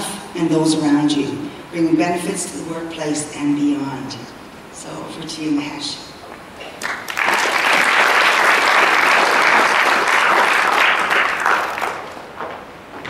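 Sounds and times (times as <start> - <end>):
audience applauding: 6.6 - 12.6.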